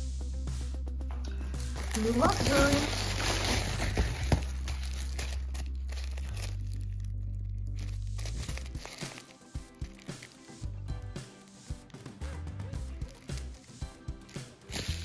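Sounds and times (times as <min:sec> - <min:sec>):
plastic packaging crinkling and tearing: 0:01.6 - 0:10.6, 0:12.8 - 0:15.0.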